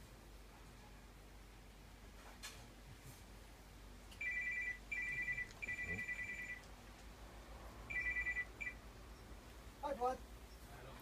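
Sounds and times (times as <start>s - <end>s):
mobile phone ringtone: 4.2s - 6.6s, 7.9s - 8.8s.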